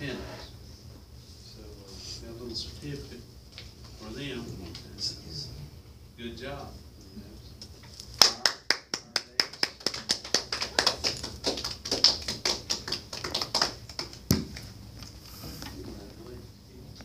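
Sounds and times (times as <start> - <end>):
small group clapping: 8.1 - 15.2.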